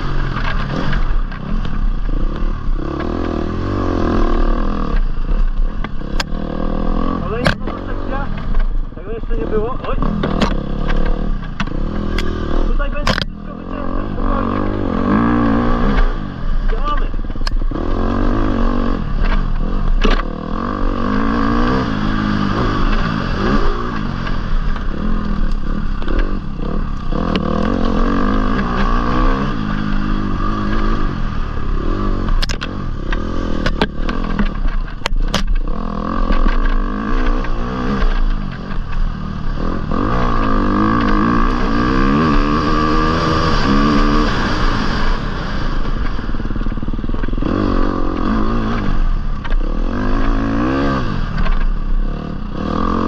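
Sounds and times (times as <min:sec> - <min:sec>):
dirt bike engine revving: 0:00.0 - 0:53.0
bike knocks and clatters: 0:32.3 - 0:39.1.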